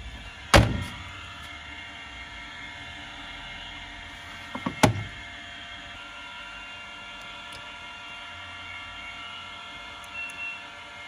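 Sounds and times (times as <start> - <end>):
washing machine door thunk: 4.6 - 5.1.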